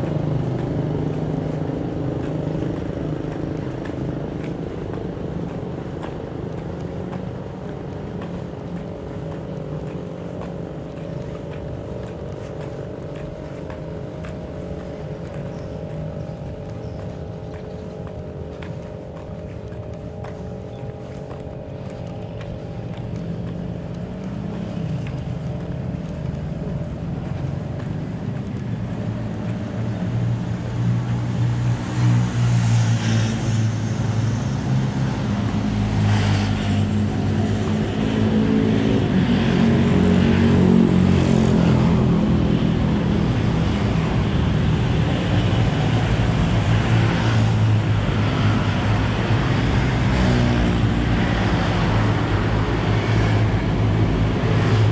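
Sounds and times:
road and wind noise: 0.0 - 54.9
vehicle engine running: 0.0 - 54.9.

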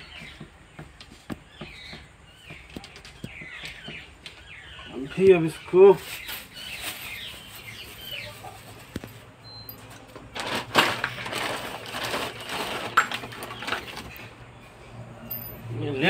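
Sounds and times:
plastic bag rustling: 5.9 - 9.3, 10.2 - 14.3
tools clattering: 9.7 - 14.1.

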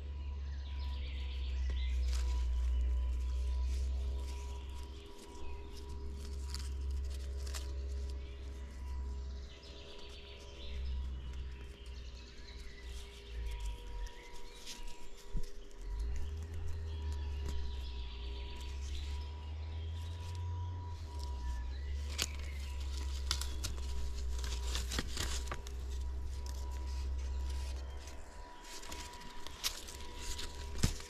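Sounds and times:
small birds chirping: 0.0 - 31.0
steady low rumble: 0.0 - 31.0
light clicks and rustles: 21.1 - 31.0.

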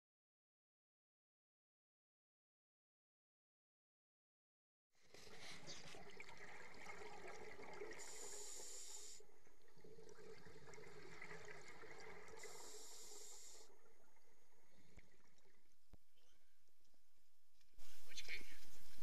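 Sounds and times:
underwater regulator bubbling: 5.2 - 16.0
hissing air surges: 8.0 - 9.2, 12.3 - 13.8.

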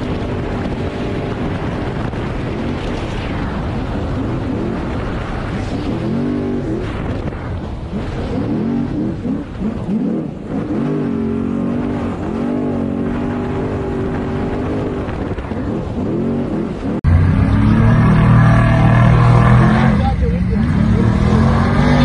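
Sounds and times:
truck engine revving: 4.2 - 22.0.

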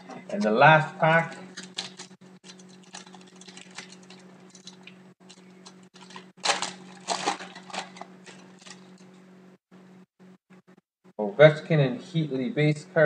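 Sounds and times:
foil wrapper crinkling and tearing: 1.4 - 9.0.

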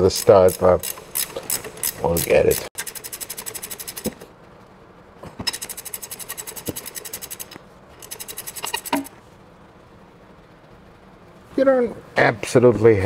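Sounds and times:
ratchet wrench clicking: 0.0 - 4.2, 5.5 - 9.1.

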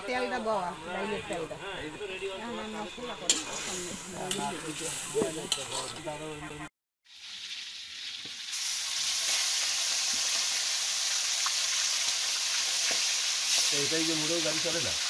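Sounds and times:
voices: 0.0 - 6.7
food sizzling in a wok: 2.6 - 6.0, 7.0 - 15.0.

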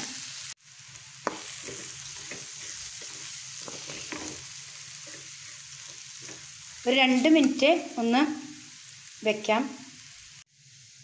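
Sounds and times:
masala sizzling in a pan: 0.0 - 11.0
steel spoon scraping pan: 1.3 - 6.5.

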